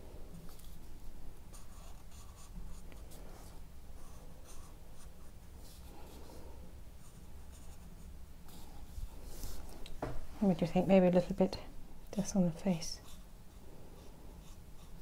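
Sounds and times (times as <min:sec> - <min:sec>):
marker scratching on paper: 0:01.5 - 0:02.8.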